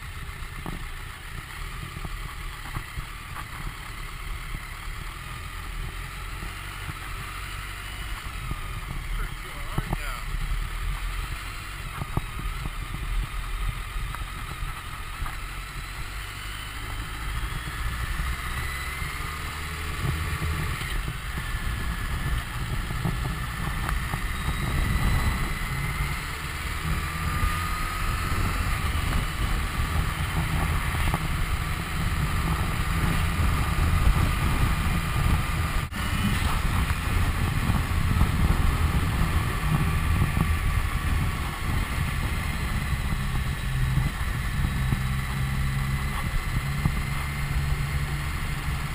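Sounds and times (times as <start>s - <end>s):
motorcycle engine running: 0.0s - 48.9s
wind noise on microphone: 19.7s - 48.9s.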